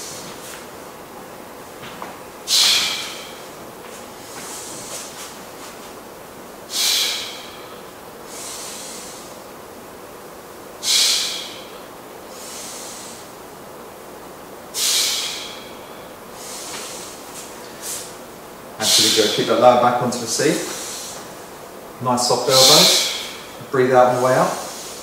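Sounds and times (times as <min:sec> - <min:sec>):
man breathing hard: 0:02.5 - 0:03.6, 0:04.2 - 0:05.3, 0:06.7 - 0:09.5, 0:10.8 - 0:13.4, 0:14.8 - 0:18.2, 0:18.8 - 0:19.9, 0:20.5 - 0:21.5, 0:22.5 - 0:25.0.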